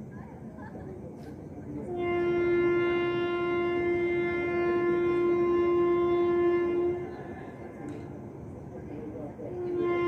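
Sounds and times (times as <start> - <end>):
train horn blast: 1.8 - 7.8, 9.4 - 10.0.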